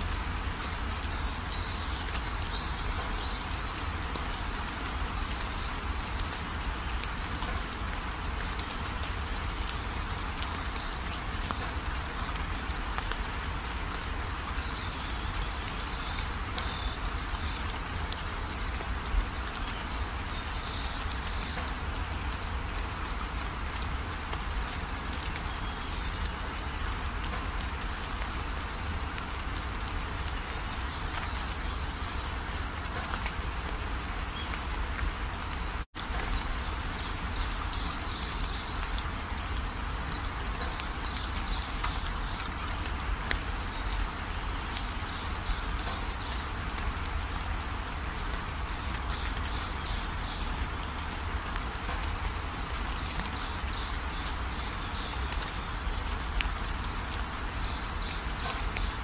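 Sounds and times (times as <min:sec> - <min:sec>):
background hiss: 0:00.0 - 0:59.0.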